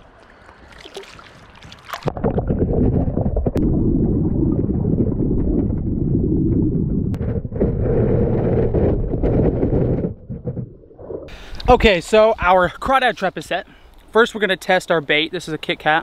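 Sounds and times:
muffled underwater rumble: 2.1s - 11.4s.

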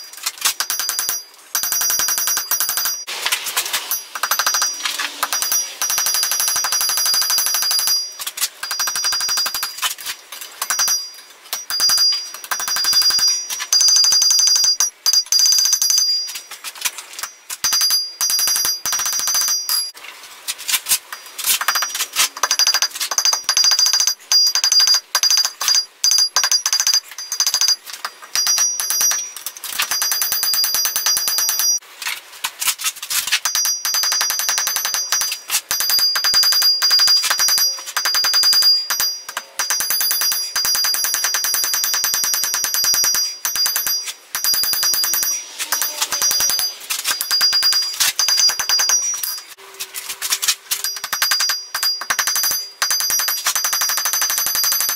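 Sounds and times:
anvil ringing: 0.6s - 3.1s, 3.9s - 9.8s, 21.7s - 31.8s, 33.5s - 49.6s, 50.7s - 54.9s
hammer striking steel on anvil: 33.5s - 49.4s.

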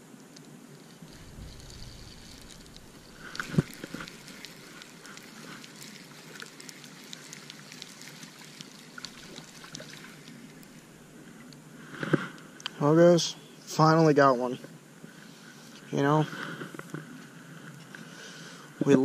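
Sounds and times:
fish splashing: 1.0s - 11.5s
water dripping: 1.0s - 11.6s.

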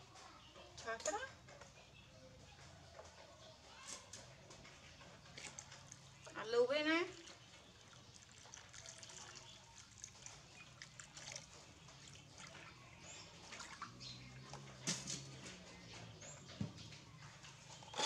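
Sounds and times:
small drips and clicks: 4.0s - 16.1s
water trickling into plastic basin: 4.6s - 18.0s.

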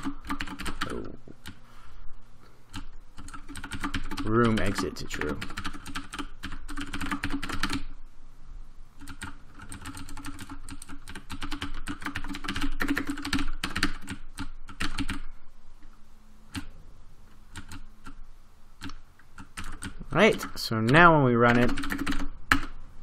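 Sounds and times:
typing on computer keyboard: 0.0s - 1.6s, 2.7s - 7.9s, 9.0s - 15.3s, 17.5s - 18.2s, 18.8s - 22.8s.

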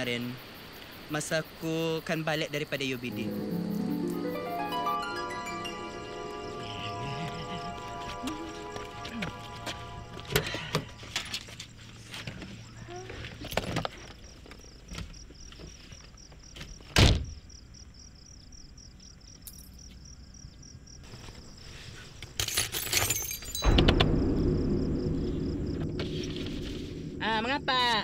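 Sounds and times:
crickets chirping: 0.0s - 28.0s
steady low sound: 23.6s - 28.0s.

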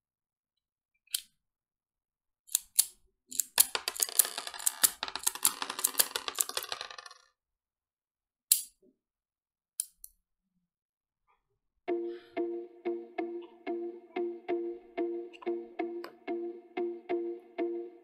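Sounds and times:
toy pistol metal clicks: 2.5s - 3.6s, 8.5s - 8.8s, 9.8s - 10.2s.

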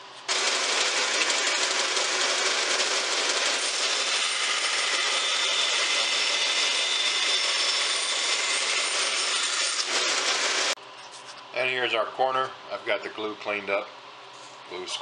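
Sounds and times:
bandsaw cutting wood: 0.3s - 10.8s.

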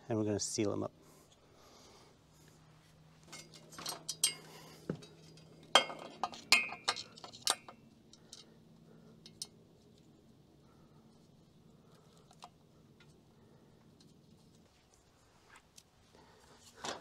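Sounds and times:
metallic clinks and taps: 3.3s - 8.5s.

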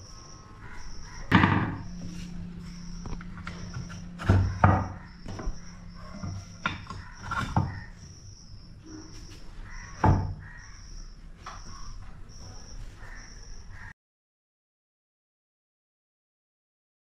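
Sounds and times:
low hum: 0.0s - 9.3s
wooden knocks: 1.0s - 8.0s, 9.7s - 10.6s.

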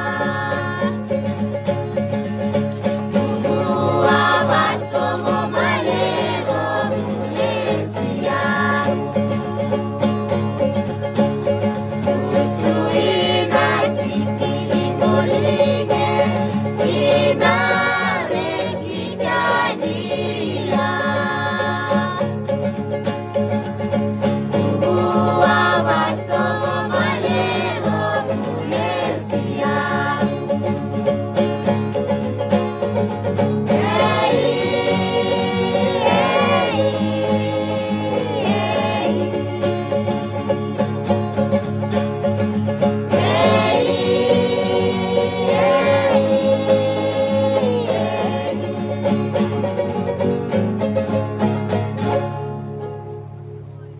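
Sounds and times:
people singing together: 0.0s - 50.8s
acoustic guitar strumming: 0.0s - 53.9s
small string instrument strummed: 0.0s - 53.9s.

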